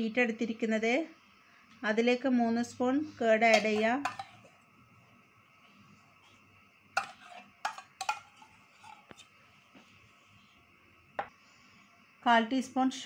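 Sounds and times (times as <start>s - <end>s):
spoon clinking against bowl: 3.5s - 4.5s, 7.0s - 9.2s.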